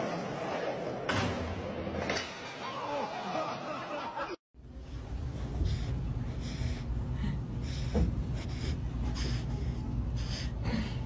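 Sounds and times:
low steady rumble: 4.6s - 11.0s.

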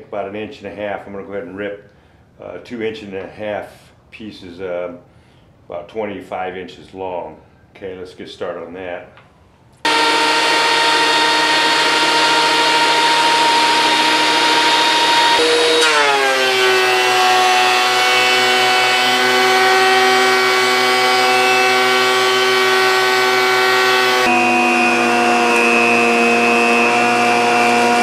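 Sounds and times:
thickness planer running: 9.9s - 28.0s.

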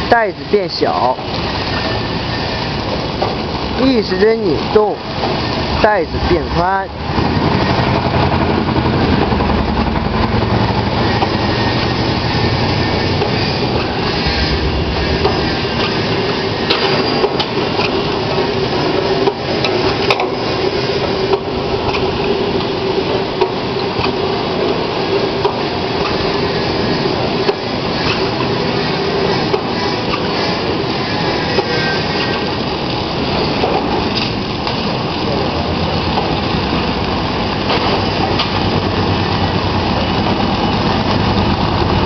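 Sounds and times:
steady hum: 0.0s - 42.0s
machine clattering: 7.2s - 39.0s.

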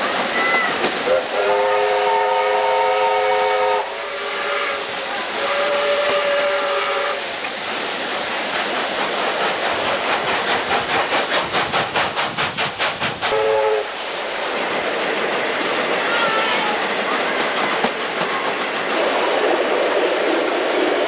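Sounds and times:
rushing noise of moving trains: 0.0s - 21.0s
steam locomotive exhaust beats: 0.0s - 21.0s
steam locomotive whistle: 0.3s - 7.3s, 13.3s - 14.0s.

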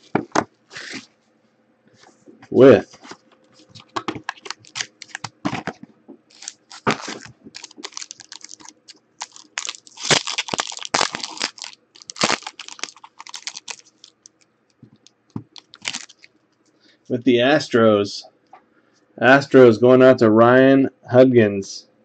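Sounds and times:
wrapper crinkling: 3.0s - 16.4s.

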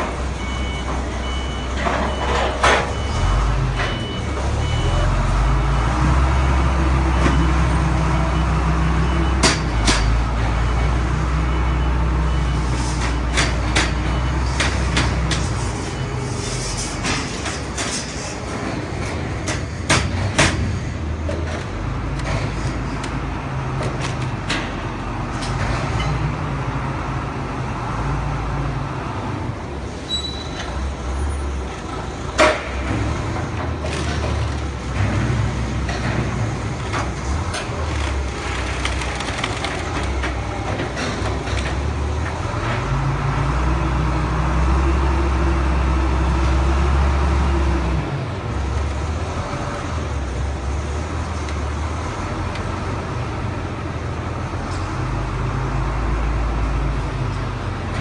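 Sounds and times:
clanks and knocks: 17.0s - 23.2s.

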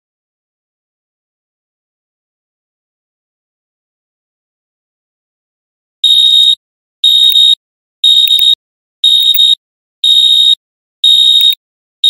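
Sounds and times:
timer alarm beeping: 6.0s - 11.6s.

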